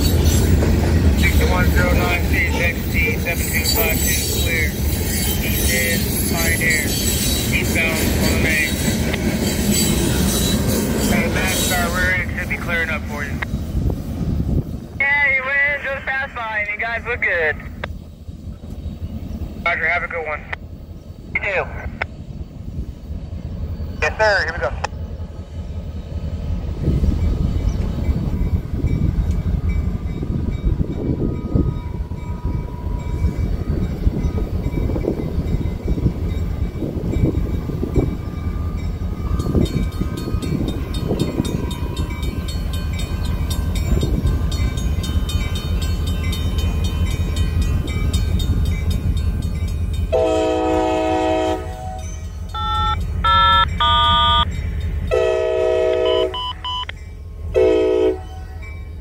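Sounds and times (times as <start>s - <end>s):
train rumbling with wheel clatter: 0.0s - 59.0s
locomotive air horn: 50.1s - 52.0s, 52.6s - 54.5s, 55.1s - 56.8s, 57.5s - 58.5s.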